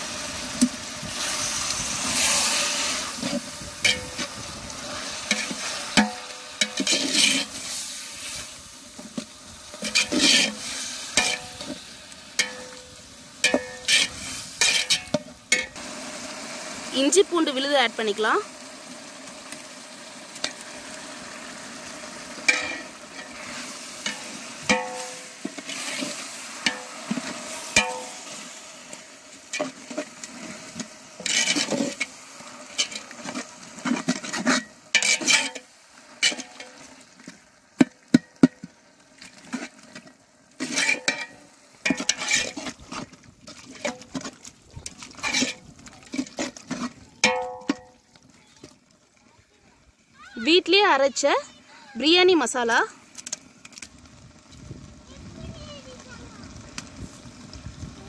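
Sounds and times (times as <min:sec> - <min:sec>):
frying sizzle: 0:00.0 - 0:49.1, 0:49.9 - 0:58.0
metal ladle scraping pot: 0:00.6 - 0:15.8, 0:22.4 - 0:36.9, 0:39.5 - 0:48.0.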